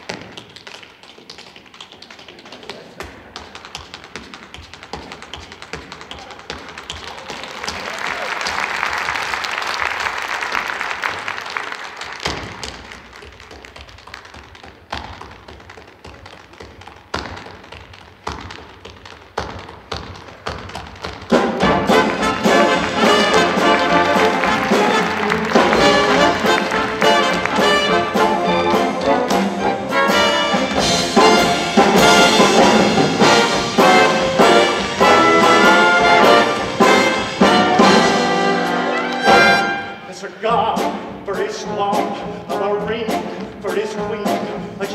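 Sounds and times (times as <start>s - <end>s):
tap shoes on stage floor: 0.0s - 44.9s
big band brass playing: 21.3s - 44.9s.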